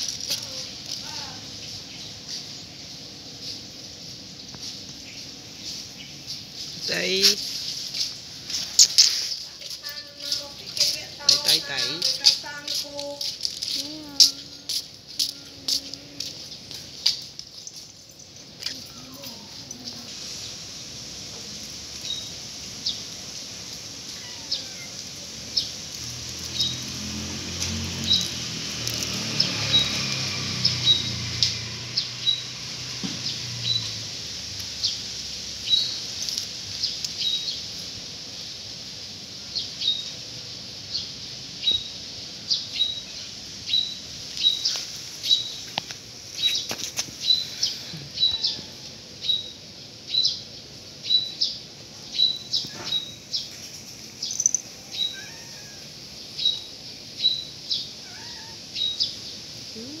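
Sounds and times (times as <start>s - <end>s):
small bird chirping: 22.0s - 23.1s, 24.0s - 32.6s, 33.2s - 34.0s, 34.6s - 37.8s, 40.8s - 60.0s.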